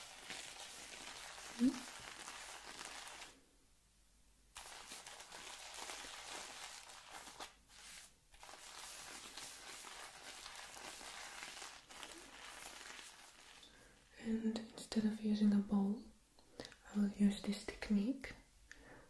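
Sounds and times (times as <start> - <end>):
shaving soap lather crackling: 0.0 - 3.4, 4.6 - 13.8.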